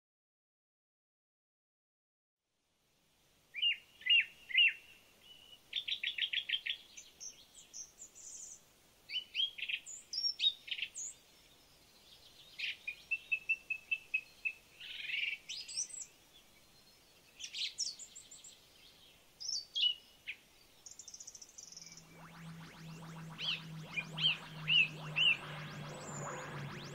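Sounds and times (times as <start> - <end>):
low electronic hum: 21.8 - 26.9.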